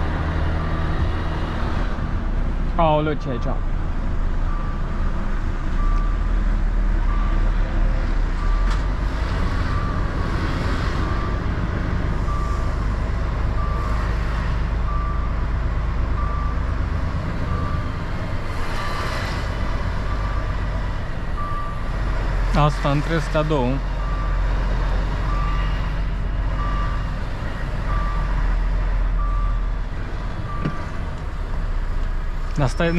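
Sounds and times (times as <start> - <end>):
diesel engine rumble: 0.0 - 32.9
reversing alarm beeps: 4.5 - 4.9, 5.8 - 6.3, 7.0 - 7.5, 11.0 - 11.5, 12.2 - 12.9, 13.5 - 14.1, 14.8 - 16.7, 17.4 - 18.0, 20.0 - 20.5, 21.4 - 21.9, 23.5 - 24.4, 25.2 - 25.8, 26.5 - 27.2, 27.8 - 28.4, 29.2 - 29.7, 30.5 - 30.9.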